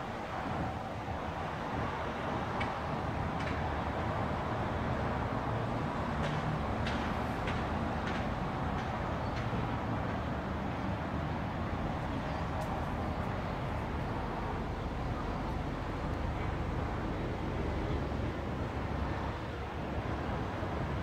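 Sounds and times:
distant road traffic hum: 0.0s - 21.0s.

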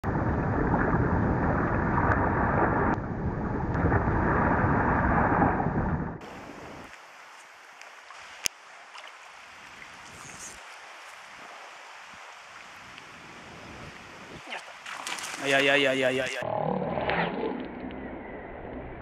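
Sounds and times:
faint stream noise: 6.2s - 16.4s
boots splashing through river: 14.4s - 15.8s.

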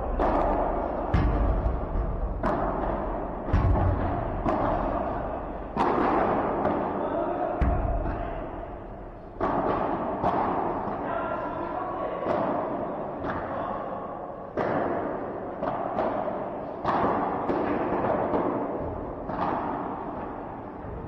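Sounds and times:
heavy thud: 0.0s - 5.8s
background noise: 0.0s - 21.0s.

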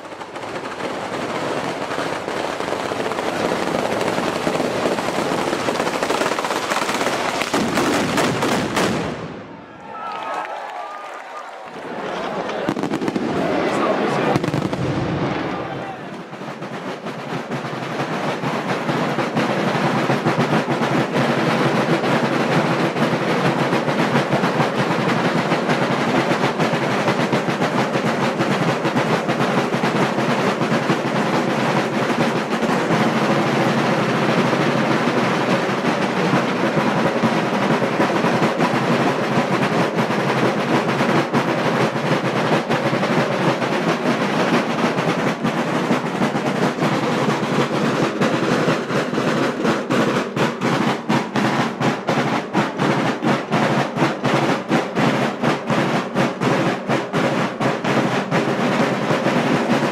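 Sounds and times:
drummers beating wooden drums: 0.0s - 59.9s.

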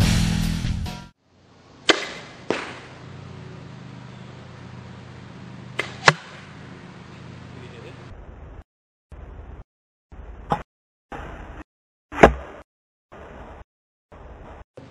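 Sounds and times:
faint steady hum: 1.2s - 9.6s
bow shot and arrow striking target: 1.8s - 3.0s, 5.8s - 6.5s, 12.1s - 12.6s.

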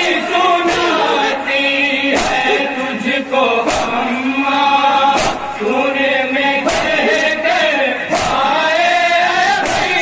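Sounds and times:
men chanting in unison: 0.0s - 10.0s
hands slapping chests: 5.2s - 5.4s.

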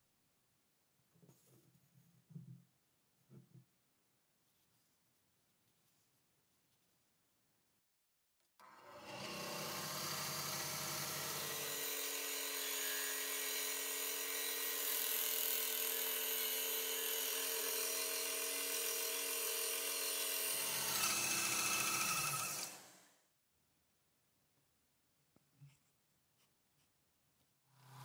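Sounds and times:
bandsaw cutting wood: 8.6s - 23.0s.

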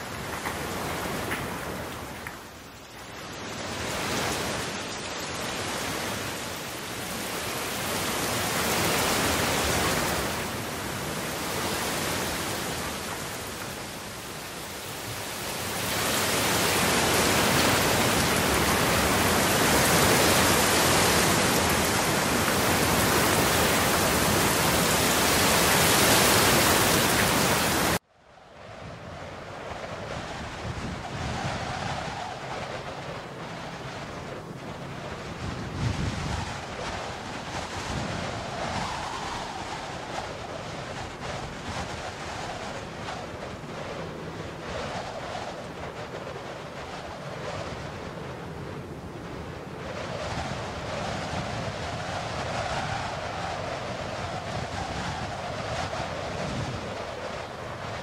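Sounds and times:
heavy rain: 0.0s - 28.0s.

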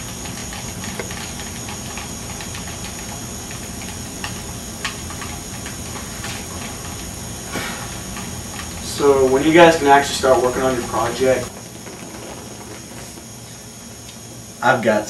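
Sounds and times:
low hum: 0.0s - 14.6s
high constant whine: 0.0s - 15.0s
recording hiss: 3.2s - 15.0s.

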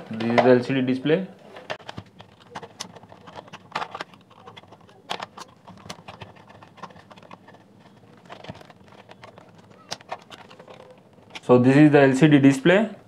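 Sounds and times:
plastic housing being handled: 1.6s - 11.5s.

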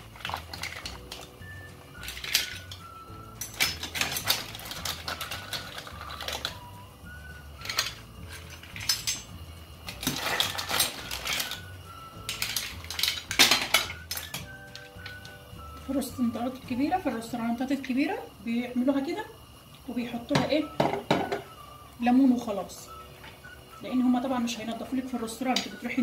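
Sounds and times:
mussel shells clattering: 0.0s - 6.7s, 7.6s - 15.4s.

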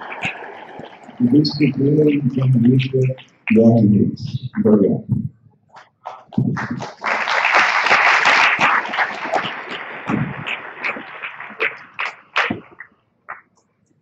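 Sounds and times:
audience applauding: 0.0s - 3.1s, 6.1s - 12.9s.

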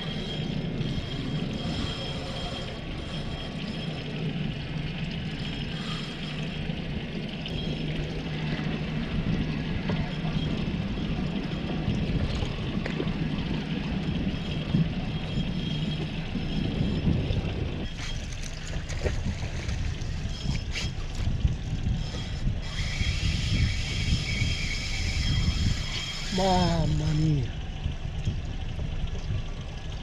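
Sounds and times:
low engine hum: 0.0s - 30.0s
water sloshing around boat: 0.0s - 30.0s
wind buffeting microphone: 0.0s - 30.0s
high whirring: 19.6s - 27.6s.

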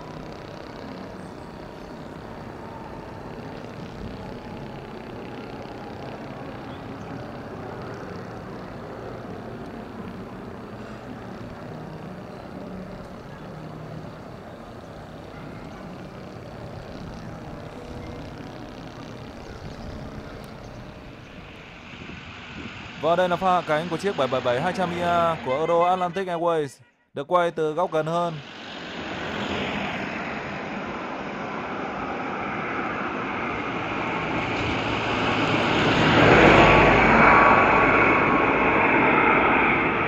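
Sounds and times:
faint steady tone: 0.0s - 26.2s
distant jet aircraft roar: 0.0s - 26.4s, 27.4s - 40.0s.

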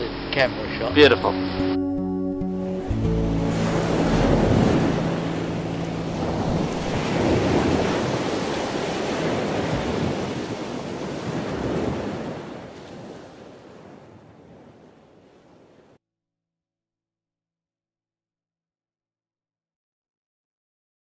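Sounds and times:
surf rushing: 2.5s - 16.0s.

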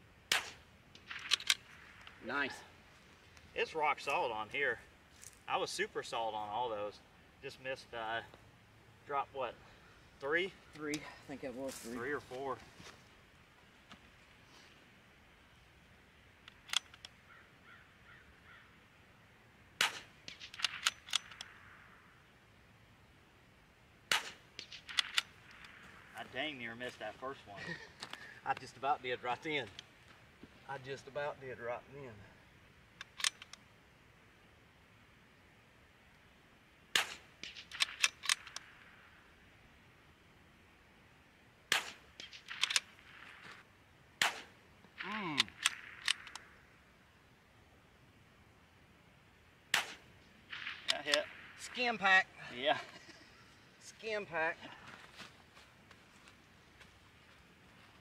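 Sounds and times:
rifle shots: 0.3s - 2.0s, 19.8s - 21.8s, 24.1s - 25.8s, 36.9s - 39.0s, 41.7s - 43.6s, 44.2s - 46.6s, 49.7s - 52.0s
rifle bolt metallic clicks: 0.3s - 2.2s, 16.4s - 17.2s, 19.8s - 21.6s, 24.1s - 25.8s, 33.0s - 33.6s, 37.0s - 38.8s, 41.7s - 43.2s, 45.3s - 46.5s, 49.8s - 51.3s
faint bird calls: 9.6s - 11.3s, 17.0s - 19.4s.

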